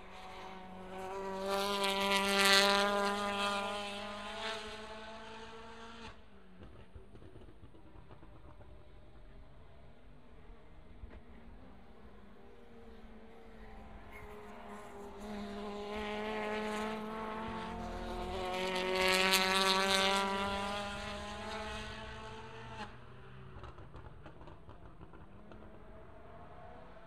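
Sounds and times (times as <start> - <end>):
race car engine passing: 0.1 - 6.3, 11.8 - 27.0.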